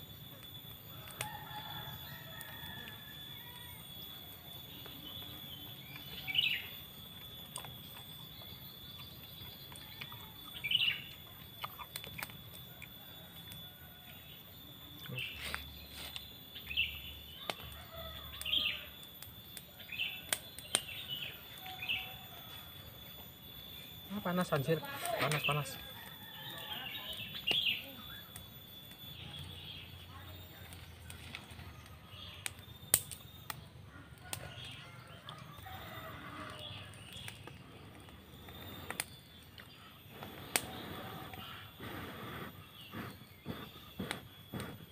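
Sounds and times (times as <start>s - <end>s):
wood fire crackling: 0.0s - 44.9s
sharp snaps of fire: 0.3s - 4.1s, 4.7s - 22.2s, 30.7s - 44.8s
bird chirping: 3.3s - 44.9s
sharp clicks: 32.5s - 33.6s.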